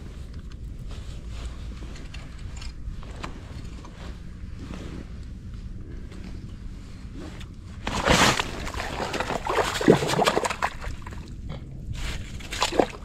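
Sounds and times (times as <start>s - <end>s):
water splashing and sloshing: 7.8s - 13.0s.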